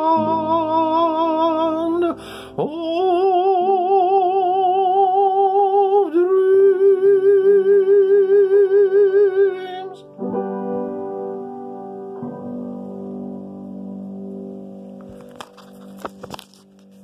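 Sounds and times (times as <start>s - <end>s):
man singing with vibrato: 0.0s - 10.2s
keyboard accompaniment: 0.0s - 17.0s
singer breathing: 2.2s - 2.6s.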